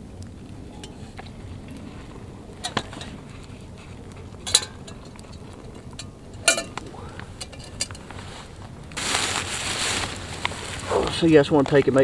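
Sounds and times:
boiling water pouring: 0.0s - 12.0s
metal pot clinking: 0.7s - 1.4s, 2.6s - 3.2s, 4.4s - 8.1s.

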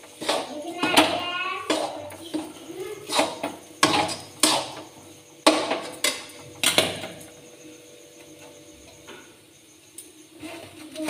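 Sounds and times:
metal spatula scraping steel pan: 0.0s - 4.9s.

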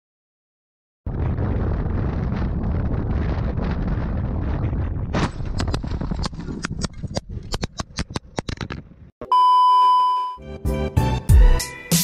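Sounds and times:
low rumble: 1.1s - 6.8s
sharp knocks and scrapes: 5.2s - 9.0s
loud steady electronic beep: 9.2s - 10.4s.

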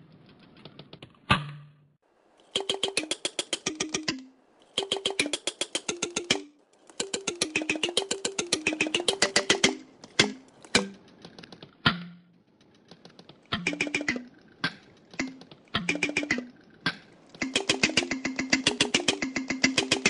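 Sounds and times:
can pull tab twanging melody: 2.5s - 11.2s, 13.5s - 20.0s.

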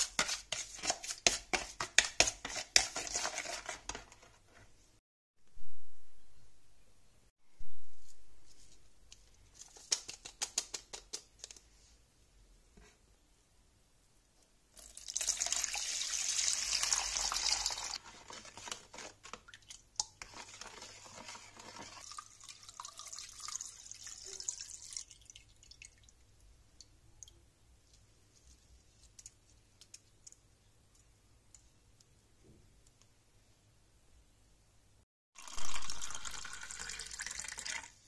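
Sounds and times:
water pouring into bowl: 14.8s - 18.0s, 21.9s - 26.2s, 35.4s - 38.0s.

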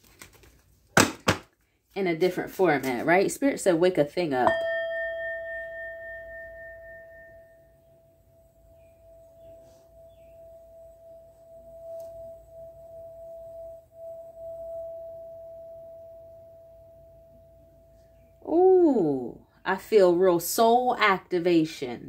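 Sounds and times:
singing bowl ringing: 4.4s - 18.6s.

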